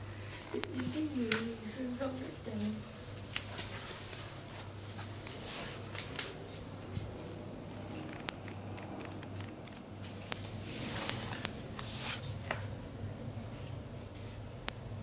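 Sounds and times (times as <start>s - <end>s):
fabric rustling and swishing: 3.3s - 7.4s, 10.0s - 12.7s.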